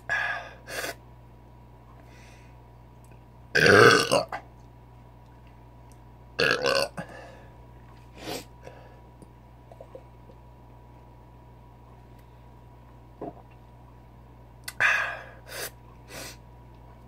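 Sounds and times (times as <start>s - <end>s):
man belching: 3.6s - 4.4s, 6.4s - 7.0s.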